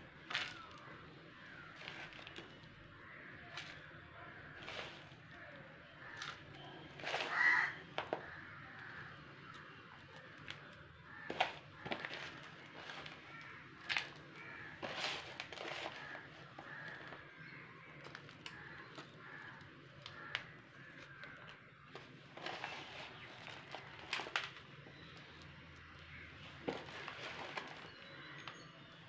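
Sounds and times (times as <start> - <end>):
birds calling faintly: 0.0 - 29.0
plastic lid scraping soil: 3.5 - 5.5, 11.2 - 17.4, 22.3 - 24.5.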